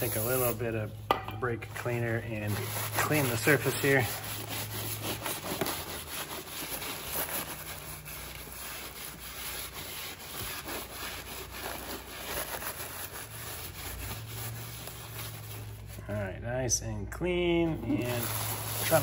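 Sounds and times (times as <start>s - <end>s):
cloth rag rubbing metal: 0.0s - 1.0s, 1.6s - 16.2s, 17.6s - 19.0s.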